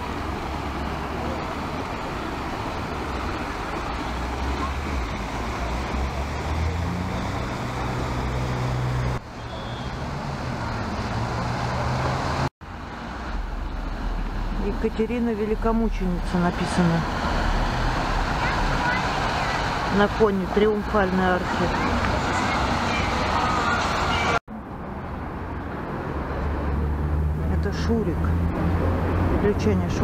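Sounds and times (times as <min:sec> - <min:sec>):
vehicle engine hum rising: 0:00.0 - 0:20.6
street traffic: 0:00.0 - 0:30.0.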